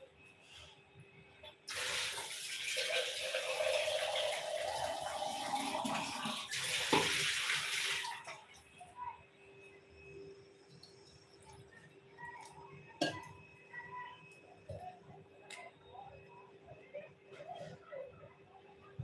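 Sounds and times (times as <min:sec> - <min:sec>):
tap water into steel bowl: 0:06.8 - 0:07.3.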